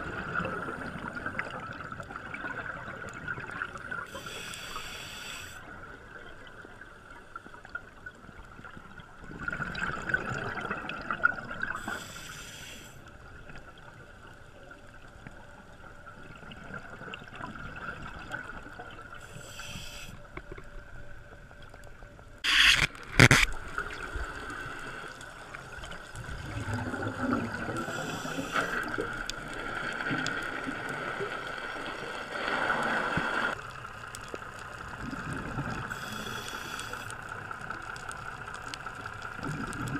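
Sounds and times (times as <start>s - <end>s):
faint steady whine: 0.0s - 9.4s, 11.4s - 39.9s
diver breathing through regulator: 4.1s - 5.6s, 11.8s - 13.0s, 19.2s - 20.2s, 27.8s - 29.0s, 35.9s - 37.1s.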